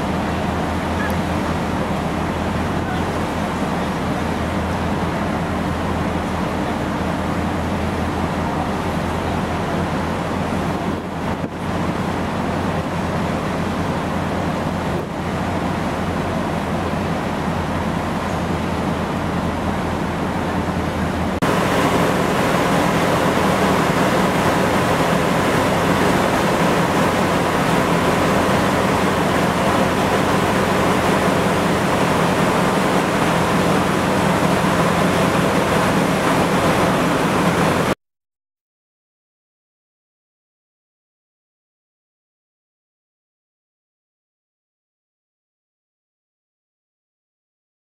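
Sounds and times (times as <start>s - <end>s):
ferry engine hum: 0.0s - 38.0s
wind and sea water rushing: 0.0s - 38.0s.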